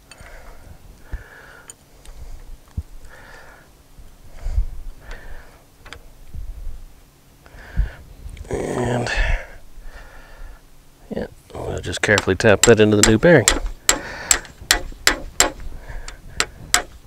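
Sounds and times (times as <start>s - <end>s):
person breathing: 0.0s - 5.7s, 7.4s - 8.2s, 9.1s - 10.7s, 13.8s - 14.6s, 15.6s - 16.7s
dull knocks: 12.2s - 15.7s.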